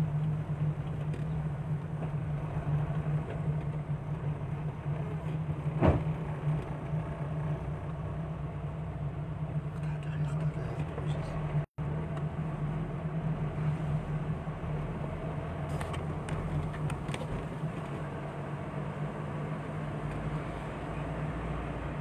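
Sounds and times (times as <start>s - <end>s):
car engine hum: 0.0s - 22.0s.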